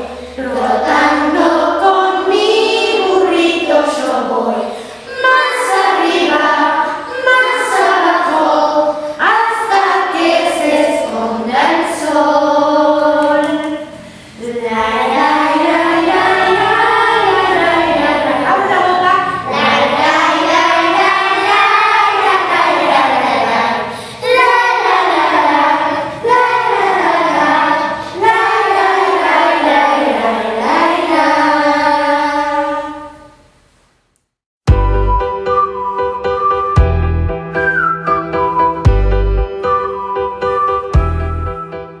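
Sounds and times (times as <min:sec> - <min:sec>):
children's choir singing: 0:00.0 - 0:33.4.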